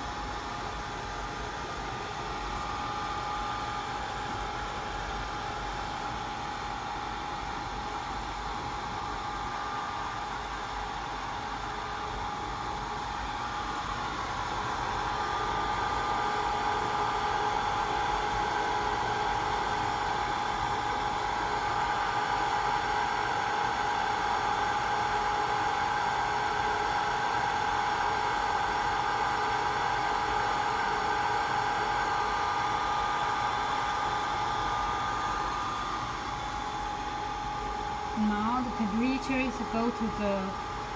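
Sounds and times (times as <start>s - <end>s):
hot-air blower rushing with whine: 0.0s - 40.9s.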